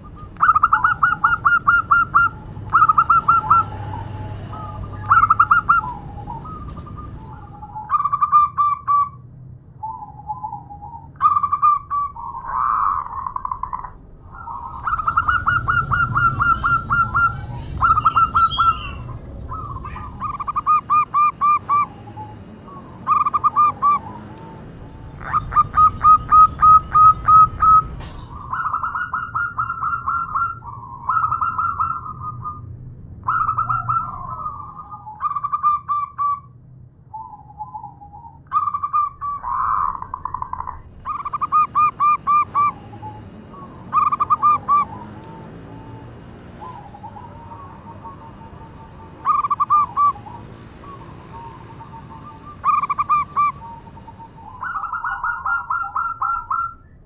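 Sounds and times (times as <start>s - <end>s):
doves cooing: 0.0s - 9.2s, 9.8s - 36.5s, 37.1s - 57.0s.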